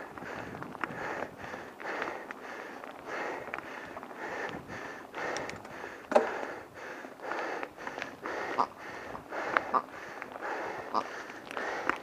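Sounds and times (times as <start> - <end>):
person breathing hard: 0.0 - 12.0
sharp clicks: 5.3 - 6.4.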